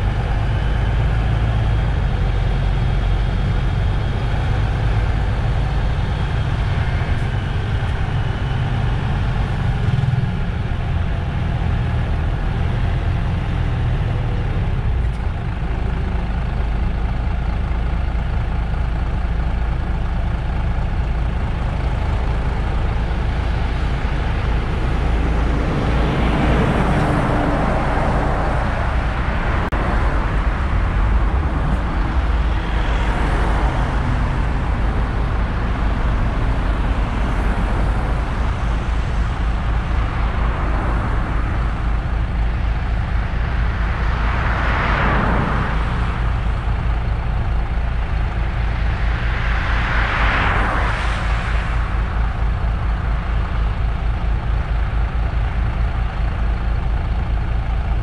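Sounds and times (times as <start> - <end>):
bus diesel engine rumbling: 0.0 - 58.0
swell of broad noise: 22.2 - 54.0.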